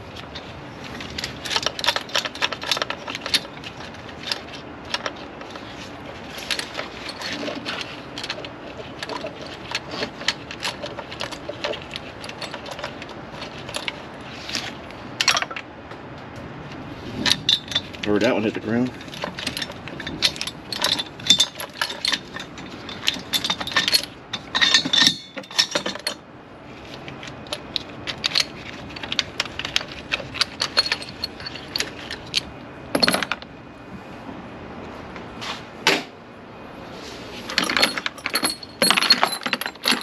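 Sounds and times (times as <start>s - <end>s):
chains clinking and rattling: 0.0s - 15.6s, 17.1s - 26.2s, 27.4s - 33.4s, 37.5s - 40.0s
metal clanks: 18.9s - 26.2s, 27.5s - 33.4s, 37.5s - 40.0s.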